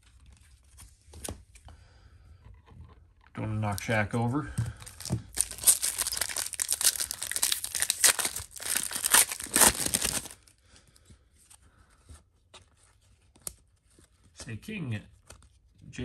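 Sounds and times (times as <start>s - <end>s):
foil wrapper tearing and crinkling: 4.8s - 10.4s.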